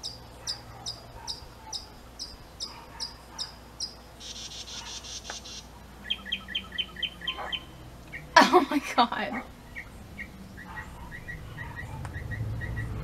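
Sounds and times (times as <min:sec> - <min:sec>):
cricket chirping: 0:00.0 - 0:08.3.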